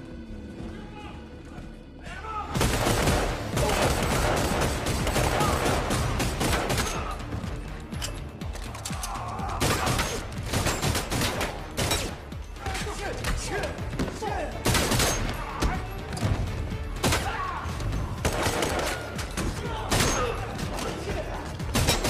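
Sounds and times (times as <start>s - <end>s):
rapid gunshots: 2.6s - 7.3s, 9.5s - 12.2s, 12.8s - 15.4s, 18.1s - 22.0s.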